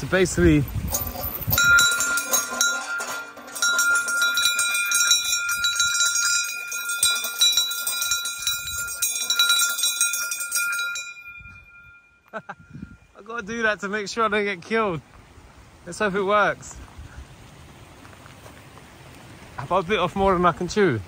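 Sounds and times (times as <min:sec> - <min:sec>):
hand bell rung rapidly: 0:00.9 - 0:13.0.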